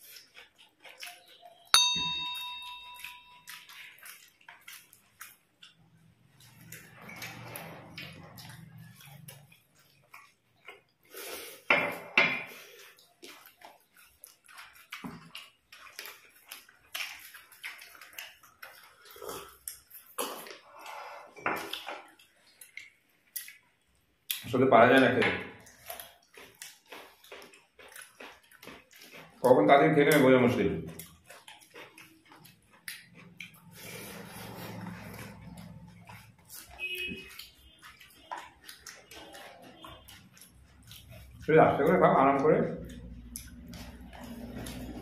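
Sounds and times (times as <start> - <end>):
fingers squelching food: 0.0 - 1.7, 25.6 - 45.0
people eating lip-smacks: 0.0 - 1.7, 3.0 - 11.7, 12.4 - 24.6, 25.5 - 45.0
bell-like ding: 1.8 - 3.5.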